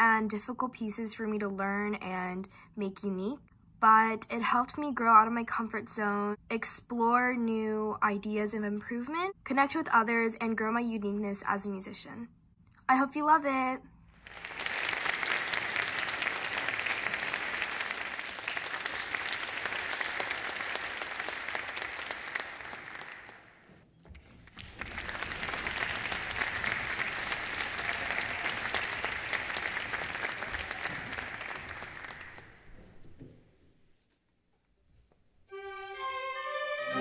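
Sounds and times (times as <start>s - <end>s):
audience applauding: 14.2s - 23.7s, 24.3s - 32.8s.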